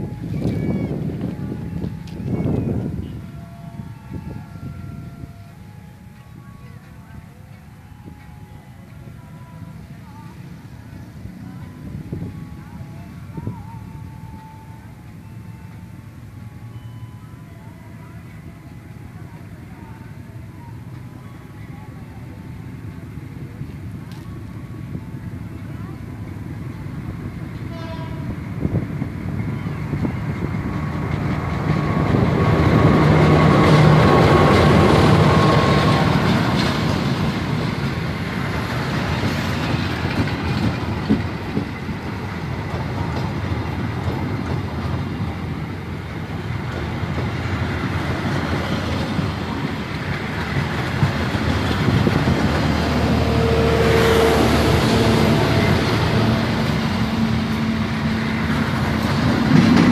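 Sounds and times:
locomotive horn: 0.0 - 6.6, 27.5 - 37.6, 51.8 - 59.9
diesel locomotive engine passing: 0.0 - 59.9
train wheels clickety-clack: 29.9 - 59.9.

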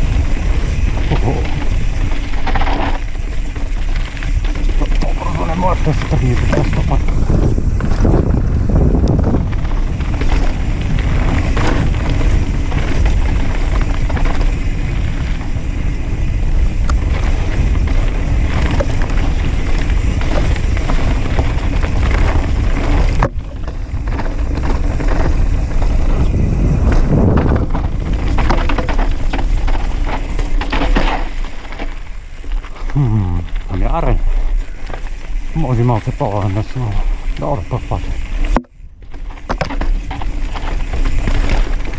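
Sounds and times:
wind buffeting microphone: 0.0 - 30.5
bike clattering over bumps: 0.0 - 41.9
mountain bike rumbling and rattling: 0.0 - 41.9
tyres on dirt: 0.0 - 41.9.

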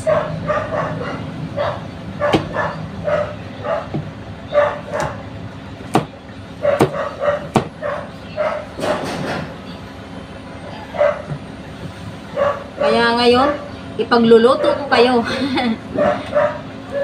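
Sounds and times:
dog yipping: 0.0 - 5.2, 6.6 - 9.0, 10.6 - 11.4, 12.4 - 13.7, 16.0 - 17.0
knife chopping on cutting board: 5.8 - 6.1, 6.7 - 7.8.

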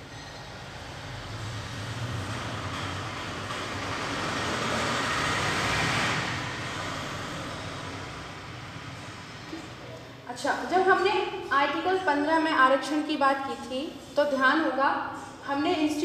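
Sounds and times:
passing vehicle rumbling: 0.0 - 10.2.

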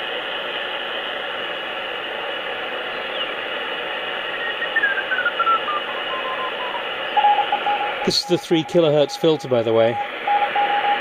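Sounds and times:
radio static hiss: 0.0 - 11.0
morse code tone: 5.5 - 11.0.

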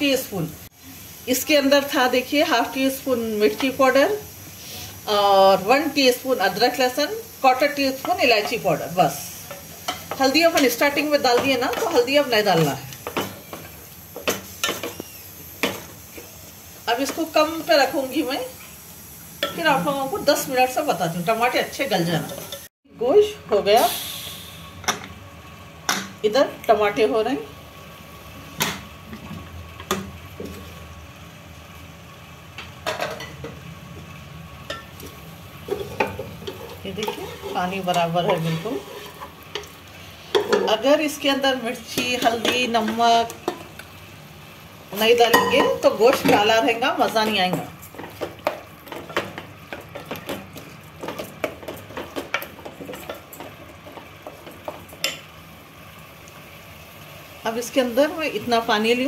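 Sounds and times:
food sizzling on stove: 0.0 - 59.0
metal cookware clinking: 34.7 - 35.0, 45.2 - 50.4, 54.6 - 55.3
spatula scraping metal pot: 35.7 - 39.4.

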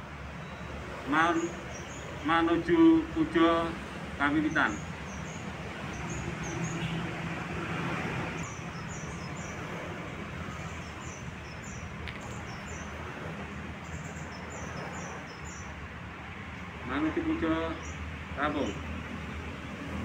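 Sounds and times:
road traffic hum: 0.0 - 20.0
small birds chirping: 0.4 - 2.9, 4.2 - 7.0, 8.3 - 16.0, 16.9 - 18.9.

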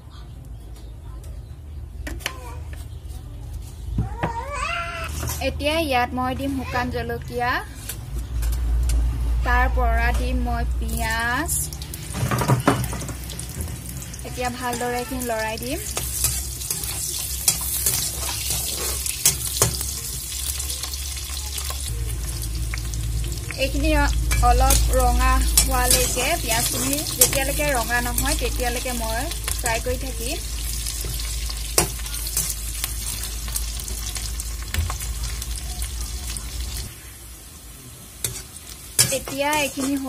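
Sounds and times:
onions sizzling in hot oil: 8.2 - 40.0
metal spatula clicking and scraping: 15.8 - 21.0, 24.3 - 29.8, 31.0 - 33.2, 38.2 - 40.0.

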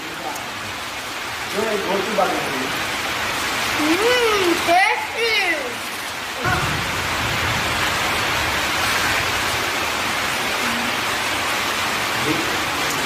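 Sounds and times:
steady rushing hiss: 0.0 - 13.0.

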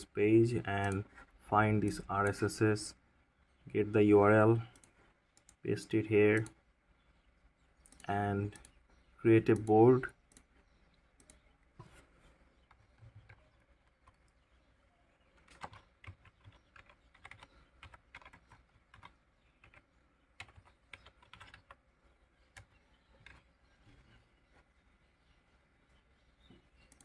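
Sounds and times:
computer keyboard typing: 0.6 - 2.5, 12.6 - 14.5, 15.4 - 21.8, 22.5 - 23.5.

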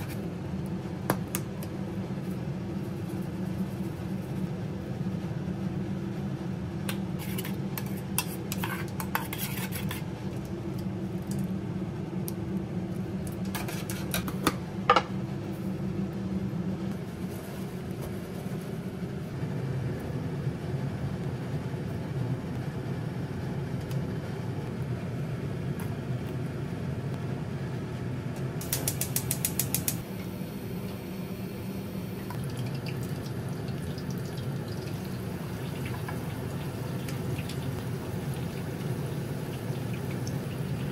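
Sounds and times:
spoon stirring in metal bowl: 6.9 - 10.1, 13.4 - 14.5.

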